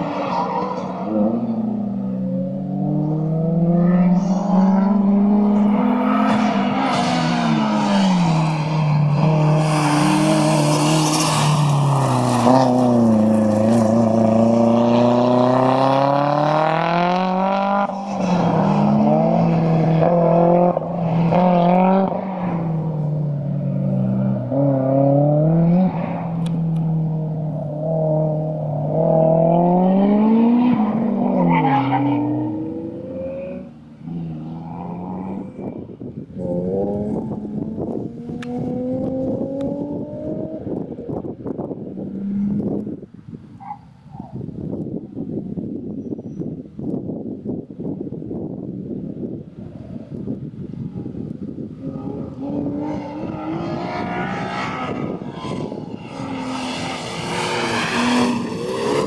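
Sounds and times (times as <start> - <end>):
car engine revving: 0.0 - 35.7, 36.4 - 40.8, 51.7 - 59.0.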